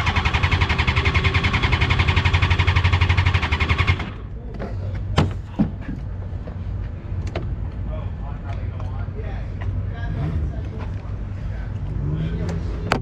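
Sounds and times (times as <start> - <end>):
starter cranking engine: 0.0 - 4.2.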